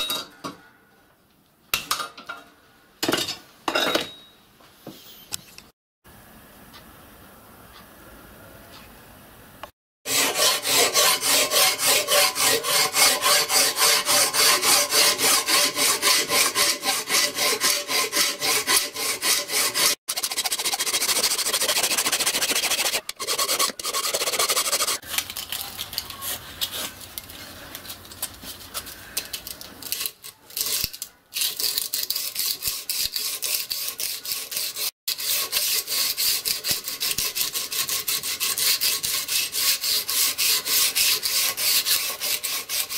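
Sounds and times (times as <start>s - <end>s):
hand file rasping on metal: 10.1s - 25.2s, 30.0s - 42.9s.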